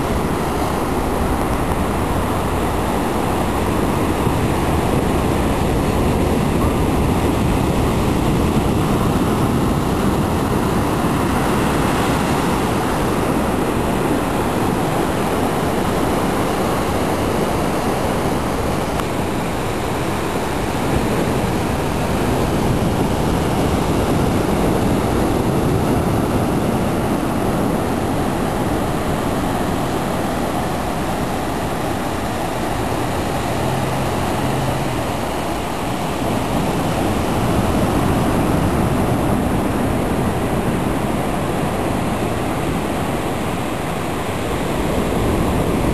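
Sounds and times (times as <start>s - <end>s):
ocean surf on a beach: 0.0s - 45.9s.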